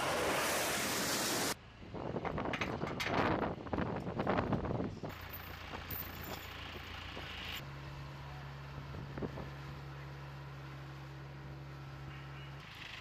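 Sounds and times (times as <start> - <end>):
wind noise: 0.0 - 5.2
tow tractor engine humming: 5.1 - 13.0.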